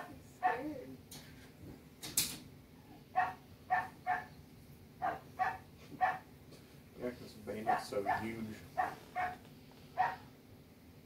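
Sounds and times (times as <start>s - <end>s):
dog barking: 3.1s - 4.3s, 5.0s - 6.3s, 7.6s - 9.4s, 10.0s - 10.3s.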